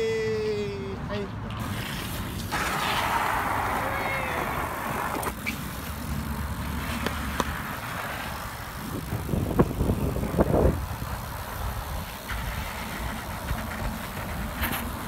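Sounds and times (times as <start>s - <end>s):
bike tyres rumbling on concrete: 1.5s - 15.0s
wind on microphone: 8.7s - 12.8s.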